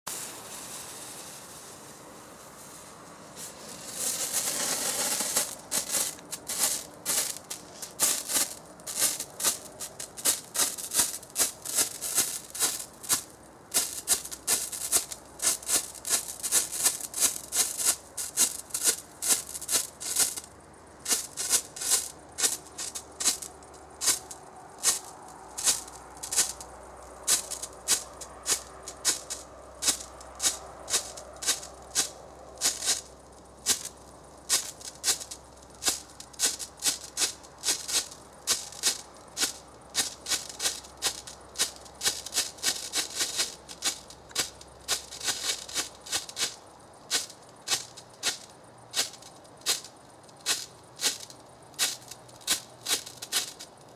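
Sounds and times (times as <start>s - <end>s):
strobe torch fizzing and hissing: 3.4s - 20.4s.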